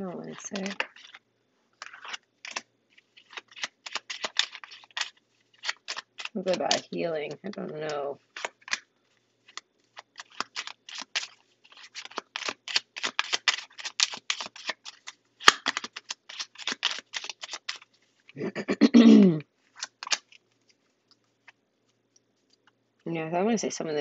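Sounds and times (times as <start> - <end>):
cards shuffling: 0.2 - 1.2, 1.8 - 18.4, 19.6 - 22.8
person humming: 18.4 - 19.4.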